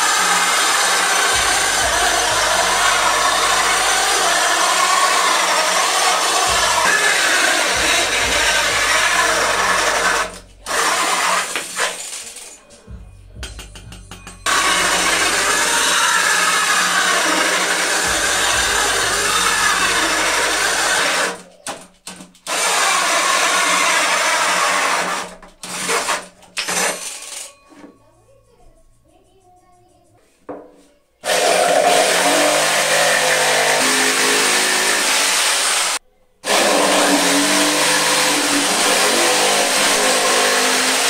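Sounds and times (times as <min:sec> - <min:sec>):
drill hole saw cutting wood: 0:00.0 - 0:12.0, 0:14.4 - 0:21.4, 0:22.5 - 0:26.8, 0:31.2 - 0:41.0.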